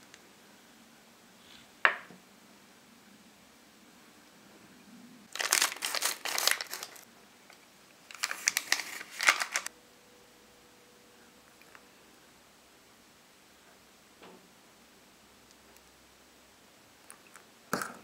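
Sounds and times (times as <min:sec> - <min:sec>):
powder sachet crinkling: 0:05.3 - 0:09.7.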